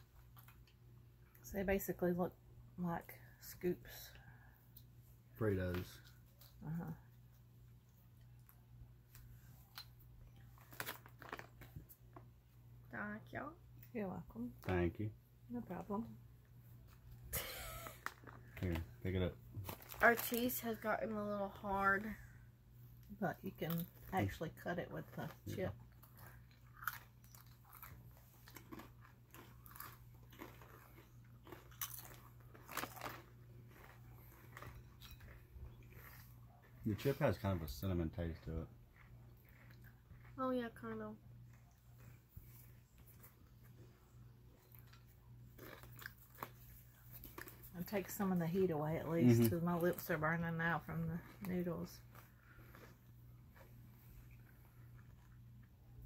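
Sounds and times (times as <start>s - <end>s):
crunching and chewing chips: 0.0s - 1.4s, 5.5s - 12.4s, 16.9s - 22.1s, 23.0s - 48.4s, 49.2s - 56.0s
low steady hum: 0.0s - 56.0s
chips crackling: 10.6s - 11.8s, 26.2s - 35.3s.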